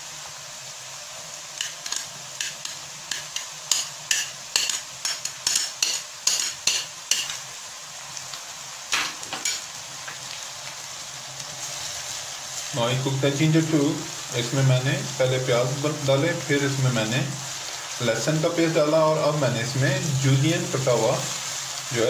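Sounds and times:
onions sizzling in oil: 0.0s - 22.0s.

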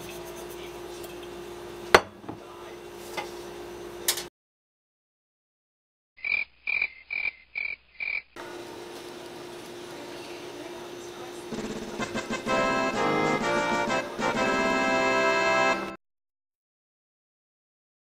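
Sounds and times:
frog croaks: 6.2s - 8.4s.

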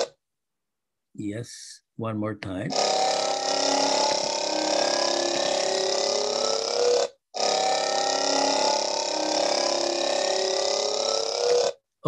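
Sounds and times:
vibrating cylinder buzzing in tube: 2.7s - 11.8s.

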